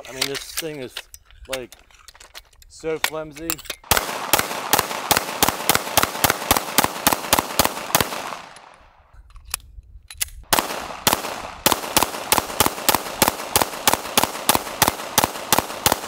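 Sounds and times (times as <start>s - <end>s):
pistol shots: 3.8s - 8.8s, 10.5s - 16.0s
pistol reload clicks: 7.3s - 16.0s.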